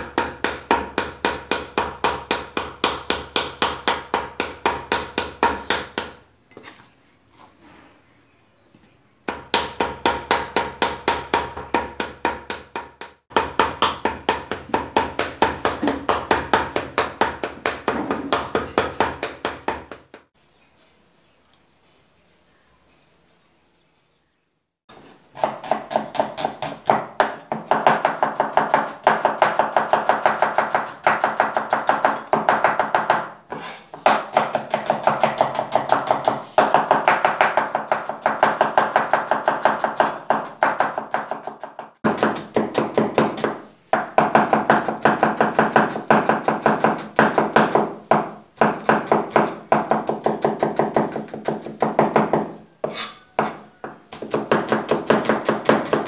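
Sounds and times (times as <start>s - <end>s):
cleaver chopping on wooden board: 25.4s - 56.0s.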